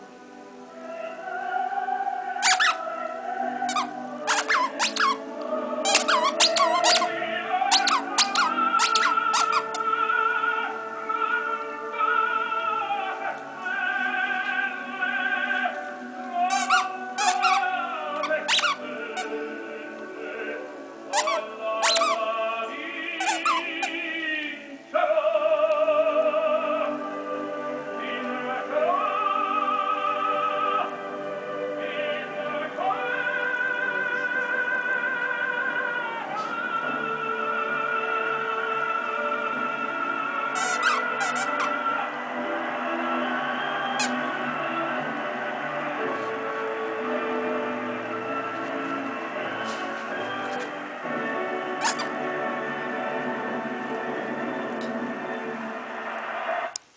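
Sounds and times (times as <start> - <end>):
operatic tenor singing with orchestra: 0.0 - 56.6
squeaky toy squeaking: 2.4 - 2.8, 3.7 - 5.2, 5.8 - 7.1, 7.7 - 9.8, 16.5 - 19.4, 21.1 - 22.2, 23.2 - 24.0, 40.6 - 41.8, 44.0 - 44.2, 51.8 - 52.2.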